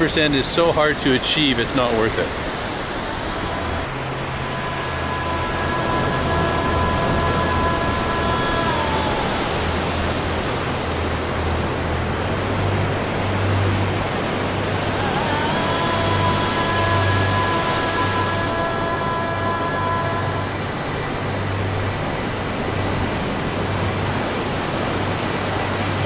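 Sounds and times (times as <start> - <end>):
low steady hum: 0.0 - 26.0
faint held tones: 1.8 - 10.3, 14.6 - 21.3.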